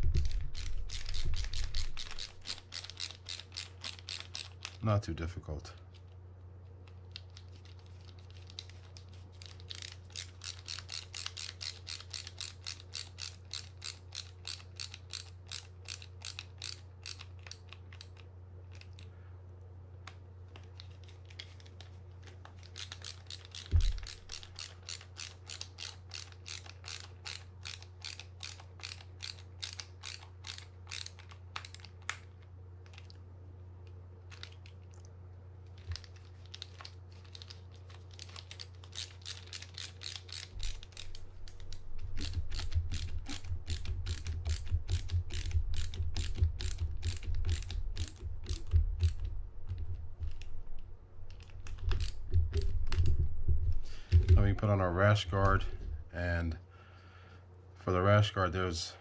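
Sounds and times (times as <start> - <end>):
low steady hum: 0.0 - 59.0
ratcheting screwdriver clicking: 0.2 - 4.8, 9.4 - 19.0, 22.6 - 31.9, 38.2 - 49.2.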